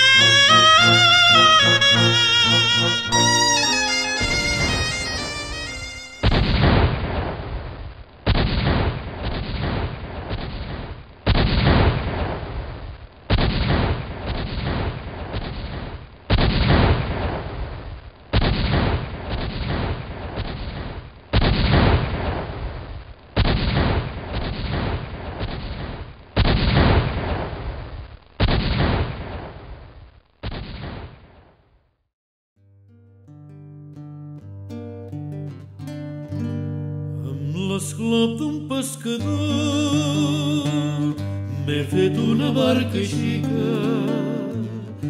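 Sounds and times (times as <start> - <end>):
fireworks banging: 3.2 - 6.9
fireworks crackling: 3.2 - 7.3.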